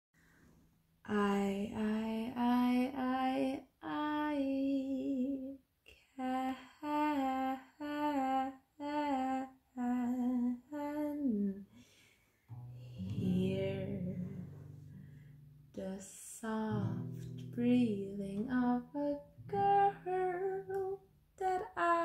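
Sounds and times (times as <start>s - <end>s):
acoustic guitar chord strummed: 12.5s - 15.6s
woman humming a melody: 12.6s - 14.8s.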